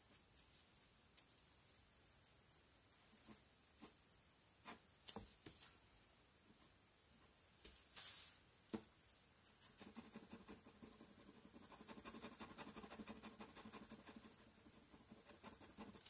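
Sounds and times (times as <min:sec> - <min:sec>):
pen scratching on paper: 0:09.7 - 0:16.0.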